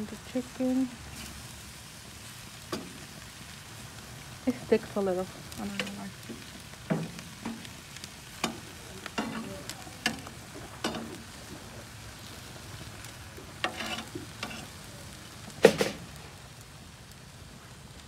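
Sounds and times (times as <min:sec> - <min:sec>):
meat sizzling: 0:00.0 - 0:18.0
metal tongs clacking on grill: 0:05.6 - 0:11.3, 0:13.6 - 0:14.8.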